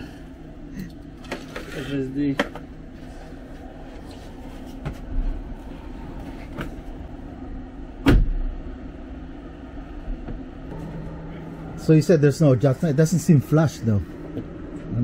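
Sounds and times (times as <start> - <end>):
steady low hum: 0.0 - 15.0
car door thunk: 8.0 - 8.4.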